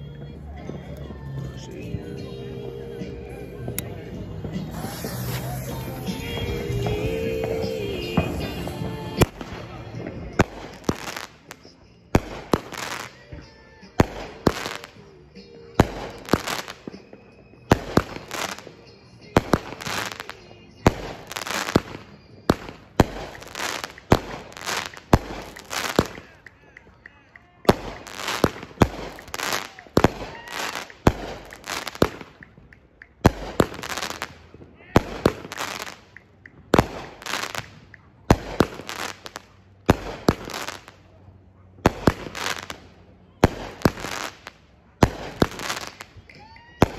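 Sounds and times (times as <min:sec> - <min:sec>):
firework shots banging: 0:03.7 - 0:46.9
firework launch thump: 0:04.4 - 0:08.6
firework crackling burst: 0:04.4 - 0:15.1, 0:15.7 - 0:26.4, 0:27.7 - 0:32.4, 0:33.2 - 0:41.1, 0:41.8 - 0:46.9.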